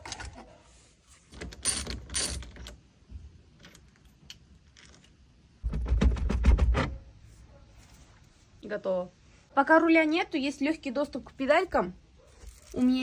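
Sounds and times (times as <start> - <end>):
steering wheel knocking and rattling: 5.6 - 7.0.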